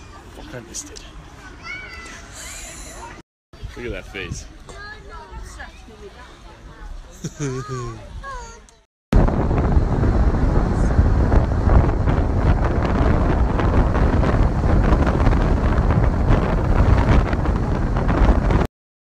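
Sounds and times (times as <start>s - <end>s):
wind buffeting microphone: 3.6s - 6.0s, 7.9s - 18.7s.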